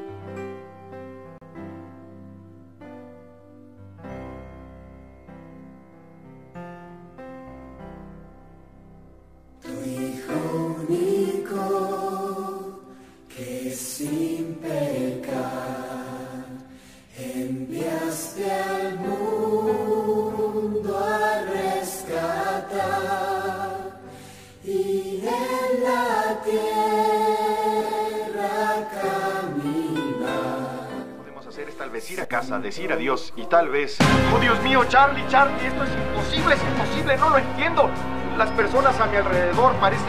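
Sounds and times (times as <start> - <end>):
choir singing long notes: 9.6 - 32.3, 34.0 - 40.0.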